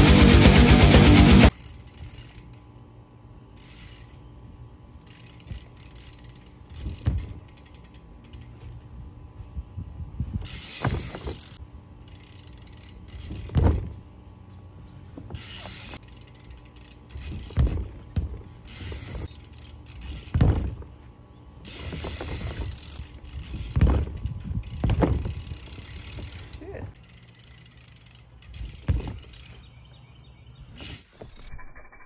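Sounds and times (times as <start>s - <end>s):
bike freewheel hub ticking: 0.0s - 9.2s, 10.4s - 14.6s, 15.2s - 21.0s, 21.6s - 30.0s
wheels thudding on ramp: 5.4s - 8.7s, 10.2s - 11.6s, 12.7s - 14.2s, 14.8s - 16.1s, 16.8s - 26.5s, 28.4s - 29.7s.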